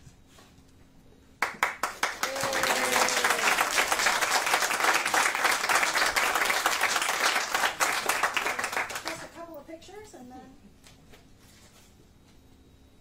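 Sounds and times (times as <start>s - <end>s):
people applauding: 1.4s - 9.4s.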